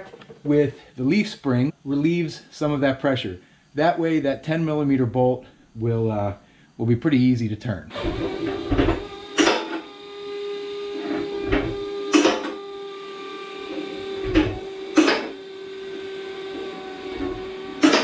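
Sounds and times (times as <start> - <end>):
hydraulic lift hum: 7.9 - 18.0.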